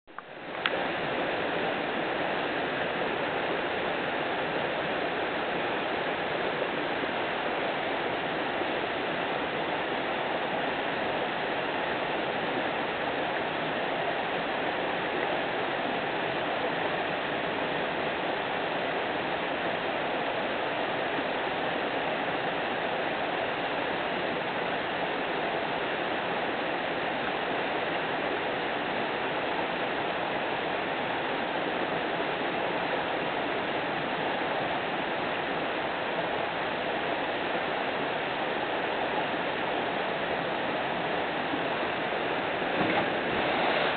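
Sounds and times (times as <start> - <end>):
water rushing down rock slab: 42.2 - 43.9.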